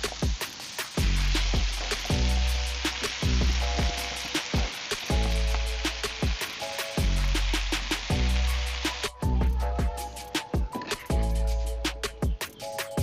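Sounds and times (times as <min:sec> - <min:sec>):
vegetables sizzling in oil: 0:00.0 - 0:10.3
background music with steady beat: 0:00.0 - 0:13.0.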